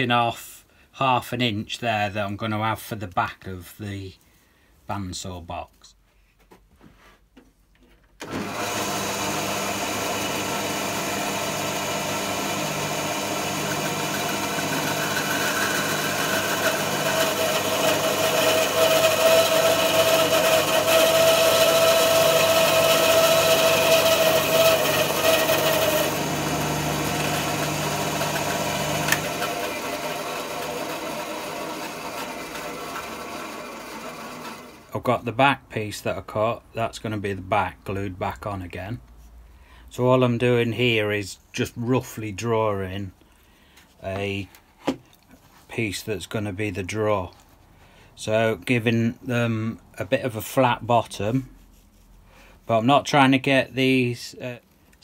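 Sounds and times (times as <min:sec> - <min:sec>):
bandsaw cutting wood: 0:08.2 - 0:34.9.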